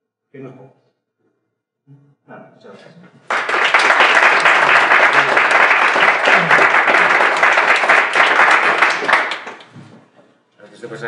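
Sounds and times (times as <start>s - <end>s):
audience applauding: 3.2s - 9.8s.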